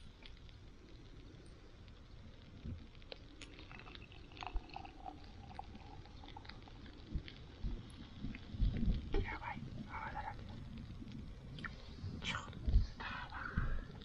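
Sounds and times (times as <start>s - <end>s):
drink pouring into glass: 3.4s - 6.8s.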